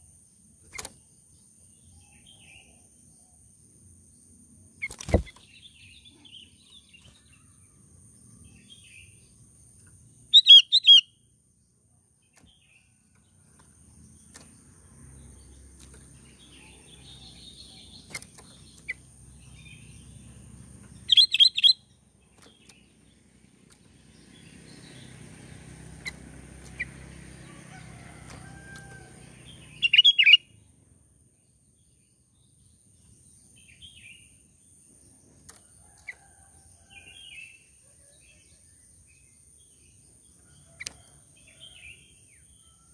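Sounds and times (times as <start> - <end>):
bird whistled calls: 10.3 - 11.1, 21.1 - 21.8, 29.8 - 30.4.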